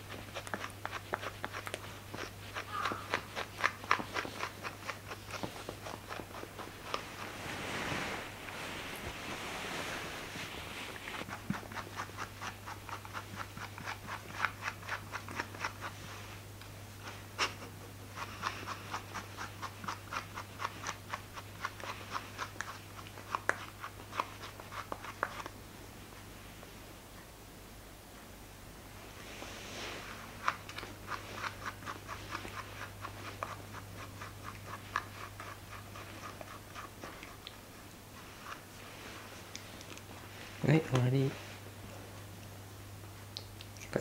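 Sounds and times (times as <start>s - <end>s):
brush strokes through dog fur: 0.0s - 25.5s, 28.9s - 42.3s
faint low hum: 0.0s - 44.0s
fabric rustling: 5.3s - 11.4s.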